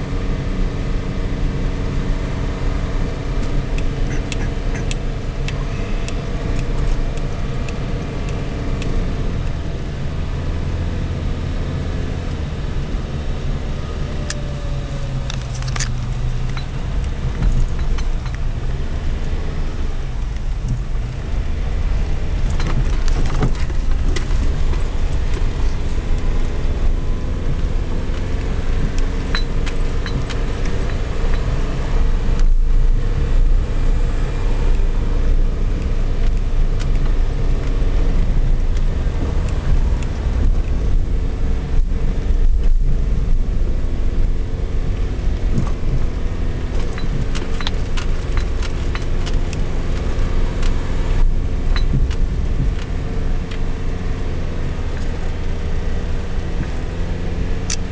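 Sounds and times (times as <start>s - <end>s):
car engine and tyres rumbling: 0.0s - 57.9s
small clicks and rattles: 15.2s - 18.6s, 22.4s - 31.6s, 45.4s - 53.7s.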